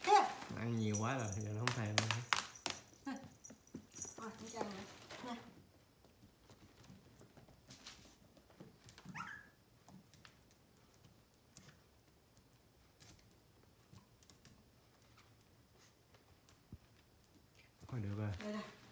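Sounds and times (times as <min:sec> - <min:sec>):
puppy whining: 0:09.0 - 0:09.6.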